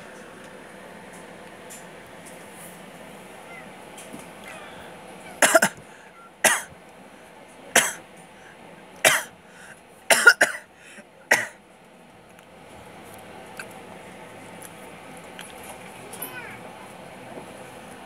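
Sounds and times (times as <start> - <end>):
low steady background hum: 0.0 - 18.0
person coughing: 5.4 - 5.8, 6.4 - 6.7, 7.8 - 8.0, 9.1 - 9.3, 10.1 - 10.7, 11.3 - 11.6.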